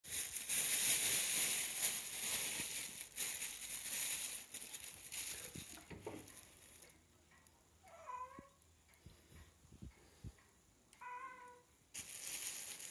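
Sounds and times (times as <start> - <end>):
crinkling rustling: 0.0 - 7.0, 11.9 - 12.9.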